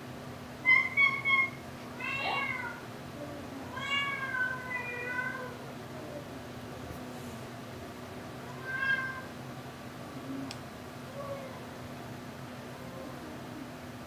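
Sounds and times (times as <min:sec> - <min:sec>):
cat meowing: 0:00.7 - 0:02.8, 0:03.6 - 0:05.6, 0:08.4 - 0:09.3.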